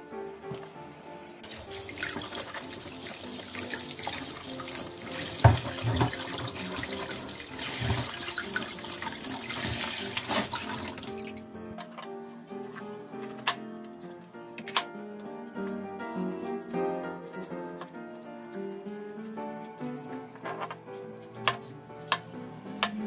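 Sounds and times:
tap water pouring into sink: 1.4s - 11.3s.

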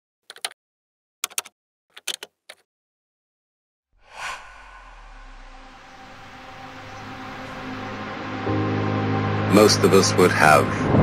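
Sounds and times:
whoosh: 4.0s - 8.4s
steady low drone: 4.0s - 9.6s.

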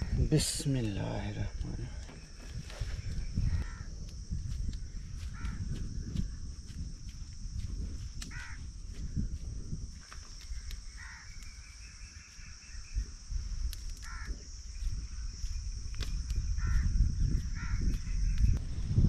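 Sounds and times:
crow cawing: 3.4s - 3.9s, 5.3s - 5.7s, 8.3s - 8.6s, 10.9s - 11.4s, 14.0s - 14.4s, 16.6s - 17.9s.

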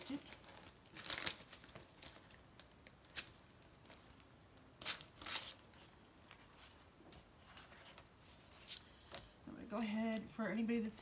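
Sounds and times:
sharp plastic crinkles: 0.0s - 6.4s
plastic sheet rustling: 0.0s - 8.8s.

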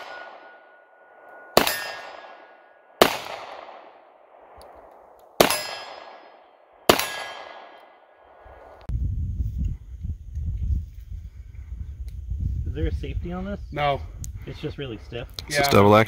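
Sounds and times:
revolver shots ringing: 0.0s - 4.0s, 5.4s - 8.0s.

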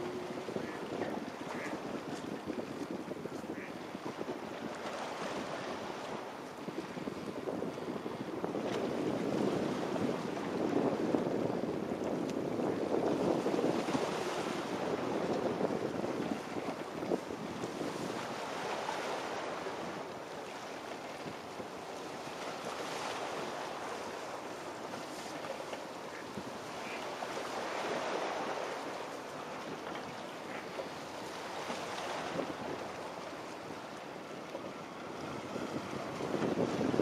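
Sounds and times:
wind rushing over microphone: 0.0s - 20.0s, 35.1s - 37.0s.

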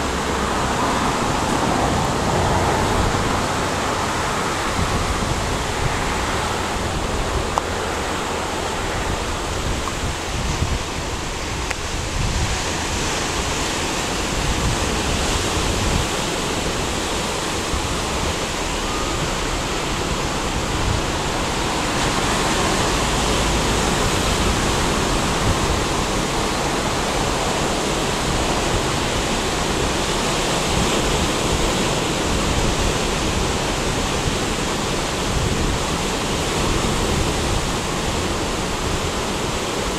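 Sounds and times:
ocean surf rushing: 0.0s - 39.9s.

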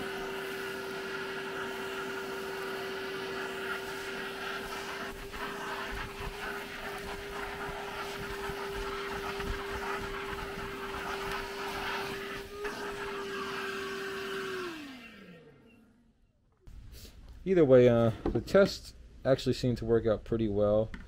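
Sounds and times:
vacuum cleaner running: 0.0s - 15.8s
vacuum motor winding down: 0.0s - 16.1s.

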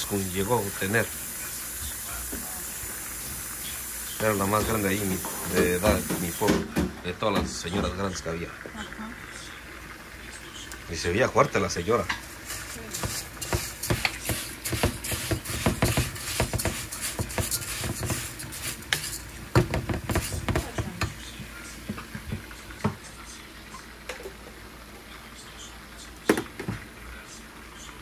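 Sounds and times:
utensil scraping in a pot: 11.9s - 21.9s.

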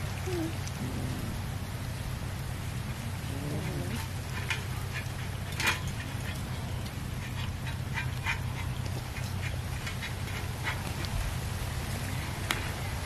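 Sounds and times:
cats chewing and licking: 2.8s - 12.8s.

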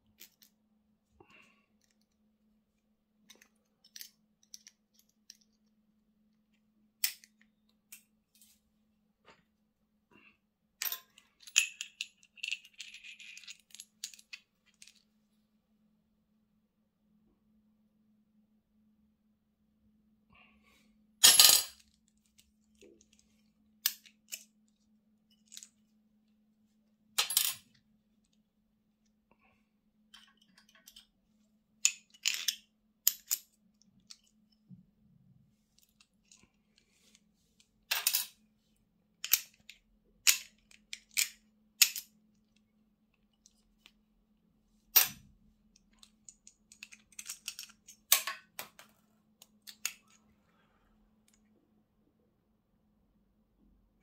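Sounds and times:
metal parts clicking: 45.8s - 48.4s.

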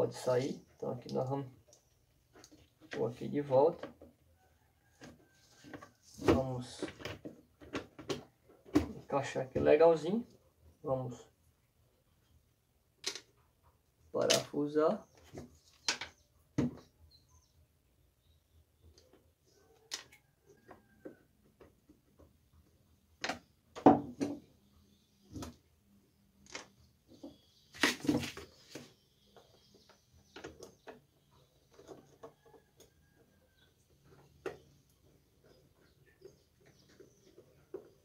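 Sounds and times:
plastic blender base being handled: 26.5s - 33.3s.

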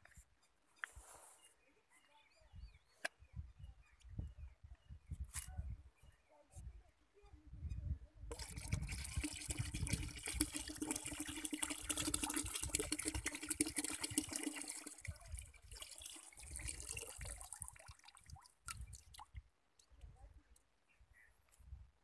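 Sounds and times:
liquid pouring into a plastic bucket: 8.3s - 19.3s
liquid dripping: 8.3s - 19.4s.

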